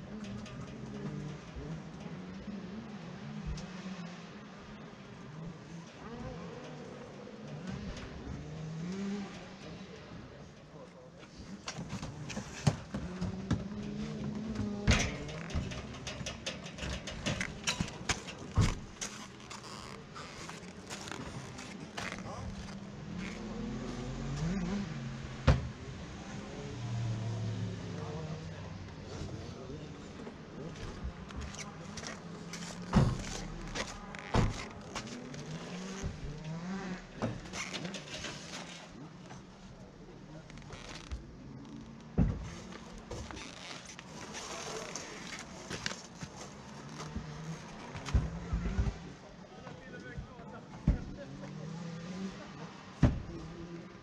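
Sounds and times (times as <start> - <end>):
engine revving: 22.0 - 25.5.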